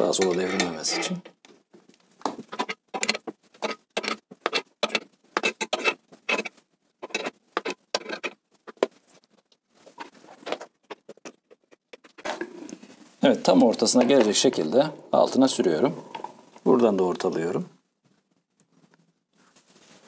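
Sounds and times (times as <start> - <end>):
scissor jack scraping strokes: 2.5 - 8.8.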